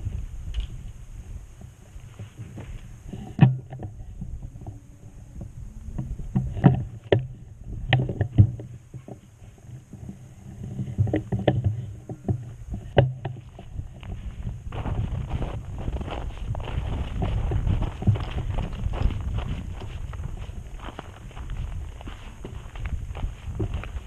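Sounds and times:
low handling rumble: 0.0 - 24.0
footsteps on snowy icy ground: 13.5 - 24.0.

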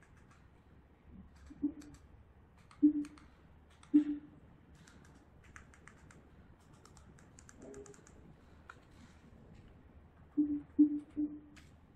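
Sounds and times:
remote control buttons clicking: 2.6 - 4.2, 4.8 - 8.9.

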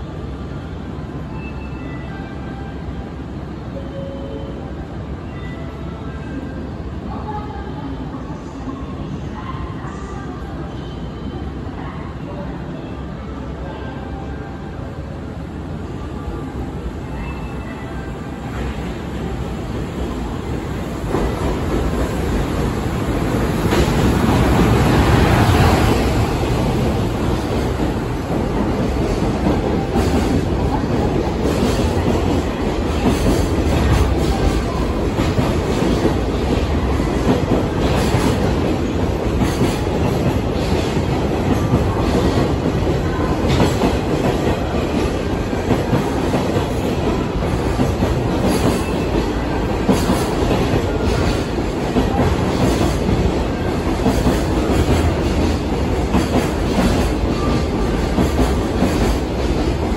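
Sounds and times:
train wheels rumbling on rails: 18.5 - 59.9
clickety-clack over rail joints: 26.8 - 59.9.

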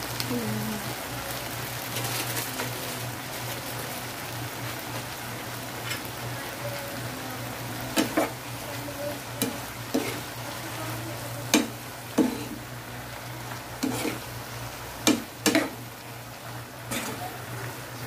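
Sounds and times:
vegetables sizzling in a frying pan: 0.0 - 18.0
plastic spatula scraping a pan: 9.9 - 10.3, 13.8 - 14.3.

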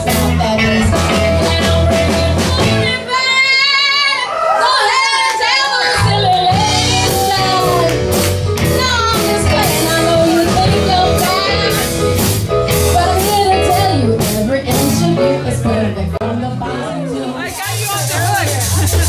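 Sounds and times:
electric guitars and bass: 0.0 - 3.1, 6.0 - 19.0
drum kit beat: 0.0 - 3.6, 6.0 - 16.0, 17.4 - 19.0
person singing lead vocal: 0.0 - 8.1, 13.0 - 19.0.

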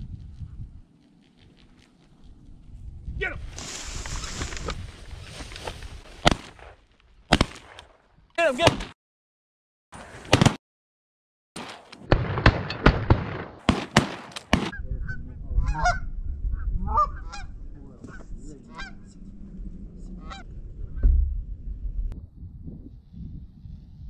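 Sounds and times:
low wind rumble: 0.0 - 6.2, 14.7 - 24.0
geese honking: 15.1 - 16.0, 16.9 - 17.5, 18.1 - 19.2, 20.2 - 20.5.

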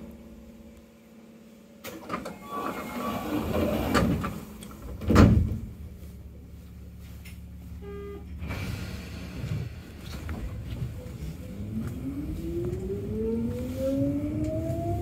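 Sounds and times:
train car low hum: 0.0 - 15.0
train doors thudding shut: 1.8 - 5.8, 8.2 - 10.6.

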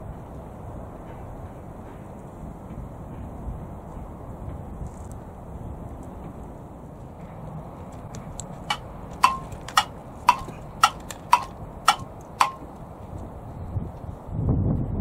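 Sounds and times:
clock ticking: 8.7 - 12.6.

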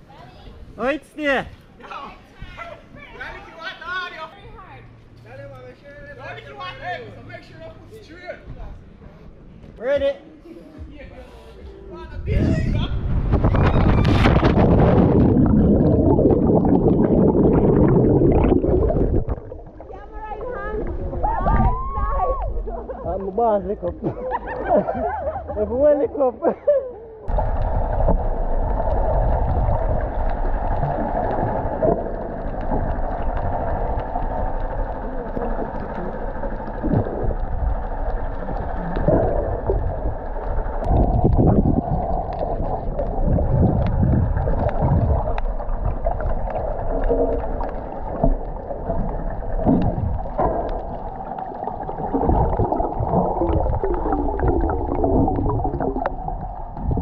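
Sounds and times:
muffled water gurgling and sloshing: 12.2 - 25.8, 27.2 - 57.0
water splashes: 13.0 - 24.8, 27.3 - 57.0.

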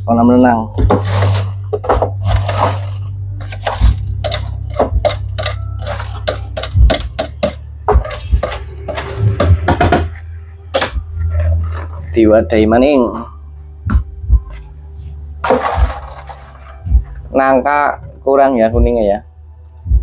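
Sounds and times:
steady low hum: 0.0 - 20.0
popcorn crunching and rustling: 0.8 - 9.2, 15.4 - 16.9.

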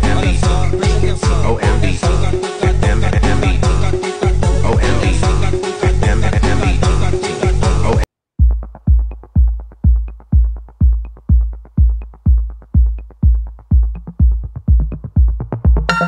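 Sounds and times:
drum machine kick: 6.0 - 16.0.

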